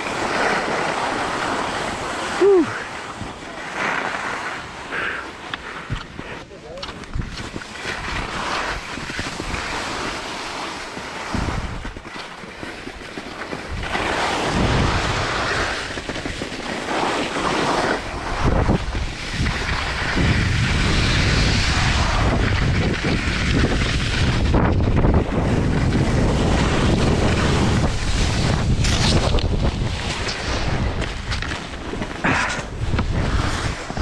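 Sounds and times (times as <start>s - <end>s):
skis sliding over snow: 0.0s - 34.0s
wind buffeting microphone: 13.6s - 17.0s, 18.0s - 34.0s.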